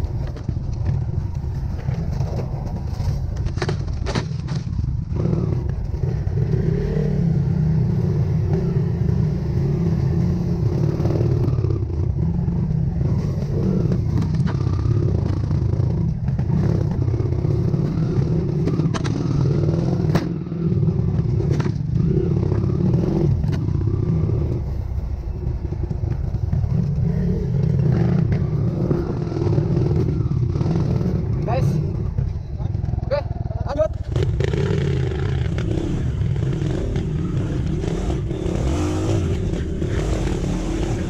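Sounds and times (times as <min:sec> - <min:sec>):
motorcycle engine at low revs: 0:00.0 - 0:41.0
knocks and clatter: 0:00.1 - 0:05.0.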